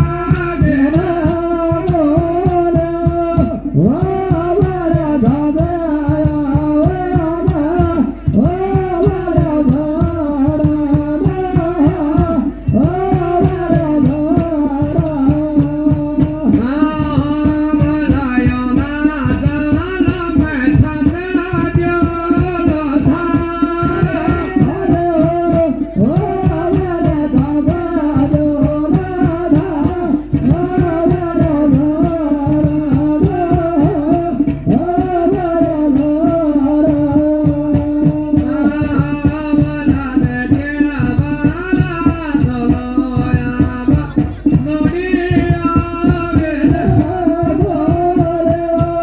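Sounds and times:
fast steady drumming: 0:00.0 - 0:49.0.

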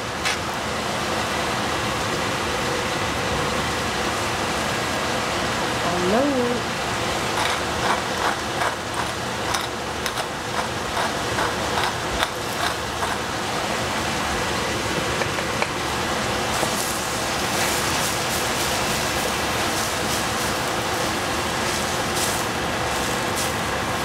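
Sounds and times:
vegetables sizzling in a pan: 0:16.2 - 0:24.0.

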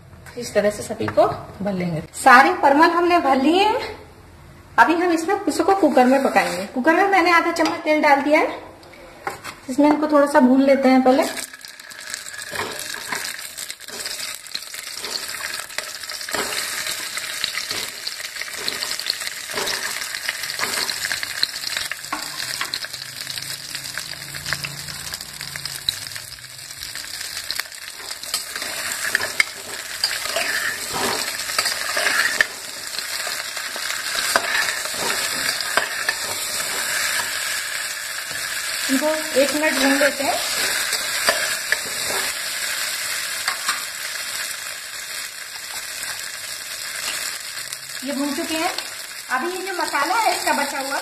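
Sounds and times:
vegetables sizzling in oil: 0:04.8 - 0:08.3, 0:09.7 - 0:51.0.

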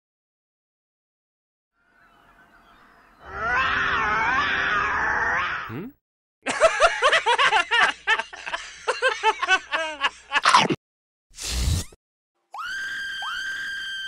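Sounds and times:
cartoon characters laughing: 0:05.7 - 0:05.9.

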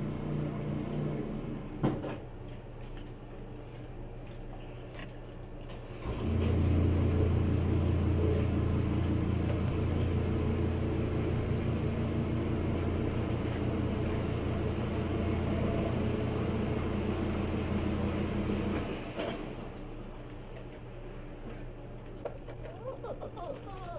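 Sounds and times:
machine humming: 0:05.8 - 0:19.7.

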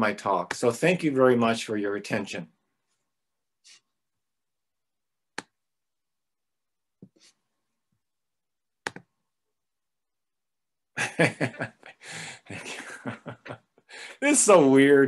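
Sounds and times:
person speaking: 0:00.0 - 0:02.6, 0:11.4 - 0:15.0.

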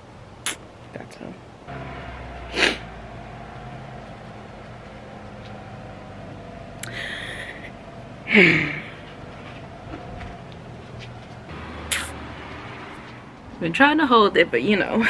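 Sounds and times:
car engine humming: 0:01.3 - 0:15.0
short hiss: 0:11.9 - 0:12.2.

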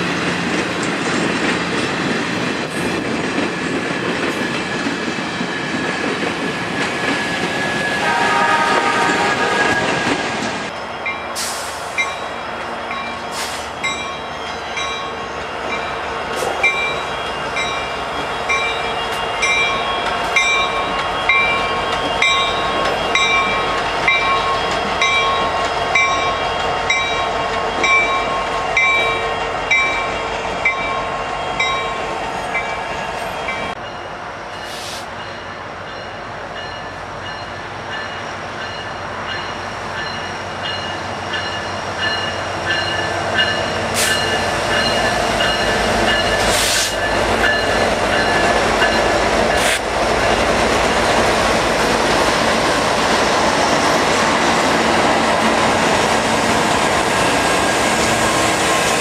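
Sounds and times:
distant freight train: 0:00.0 - 0:59.0
train rumbling slowly: 0:00.0 - 0:59.0
locomotive bell ringing: 0:12.0 - 0:13.2, 0:13.8 - 0:34.1, 0:35.2 - 0:49.7.

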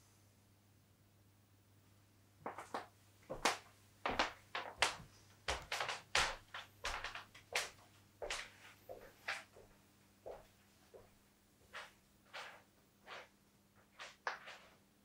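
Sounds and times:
footsteps on wooden floor: 0:03.3 - 0:14.8.

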